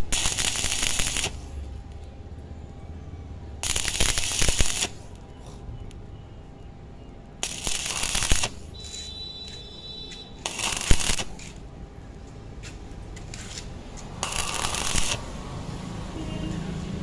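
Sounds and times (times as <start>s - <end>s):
welding arc crackling: 0.0s - 1.7s, 3.6s - 5.2s, 7.4s - 11.7s, 13.2s - 16.2s.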